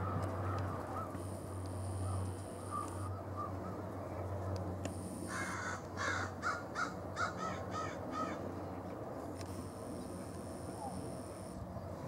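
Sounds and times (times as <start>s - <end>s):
bird giving harsh calls: 2.0s - 3.6s, 5.3s - 8.4s.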